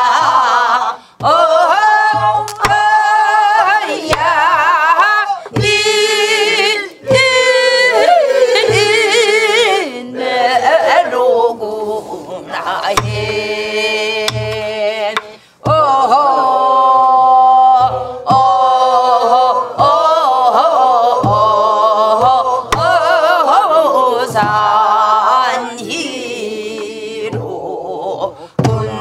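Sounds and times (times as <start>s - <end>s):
woman singing folk song: 0.0s - 29.0s
deep drum thumps: 1.2s - 9.6s, 12.9s - 16.2s, 17.2s - 26.1s, 28.6s - 29.0s
drumstick clicking on wooden frame: 2.4s - 3.0s, 14.2s - 15.4s.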